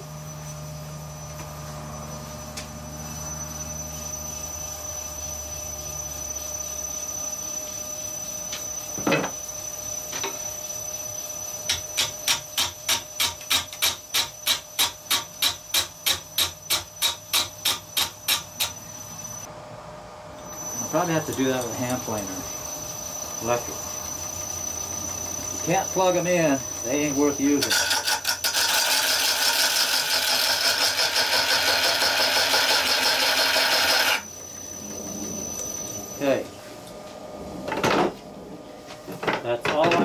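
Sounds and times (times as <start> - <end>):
wood lathe whining: 1.2 - 11.2, 20.4 - 36.2.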